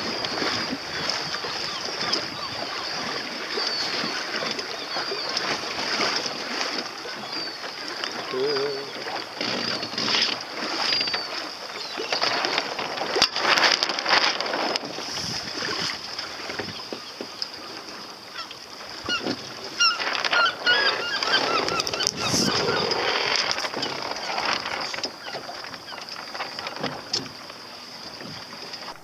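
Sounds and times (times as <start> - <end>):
gulls calling: 0.0 - 29.0
water noise: 0.0 - 29.0
wind on microphone: 14.4 - 17.0, 19.0 - 25.1.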